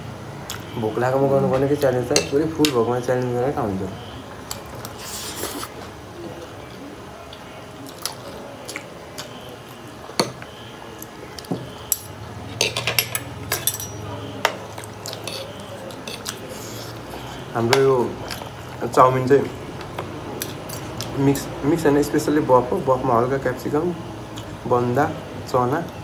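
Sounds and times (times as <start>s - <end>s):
cutlery clinking on plates: 1.5s - 2.8s, 11.4s - 16.4s.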